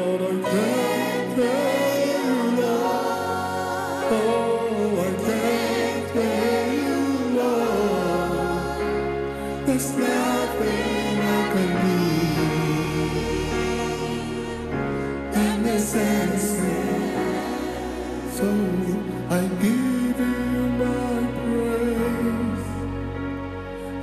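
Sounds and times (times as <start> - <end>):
lead singer singing: 0.0 - 23.1
choir singing: 0.0 - 24.0
keyboard: 0.0 - 24.0.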